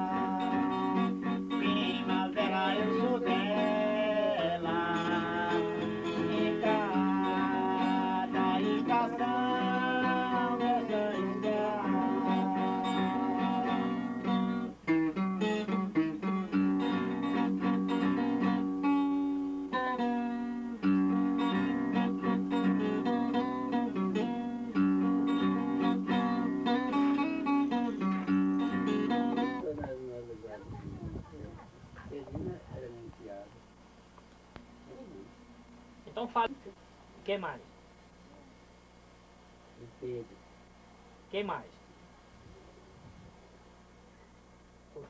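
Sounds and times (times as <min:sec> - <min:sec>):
man singing: 0:00.0 - 0:14.3
acoustic guitar: 0:00.0 - 0:40.8.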